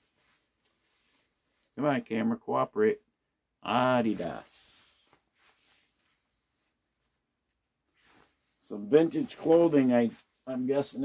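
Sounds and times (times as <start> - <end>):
nylon jacket rustling: 0.0 - 1.8, 3.8 - 11.0.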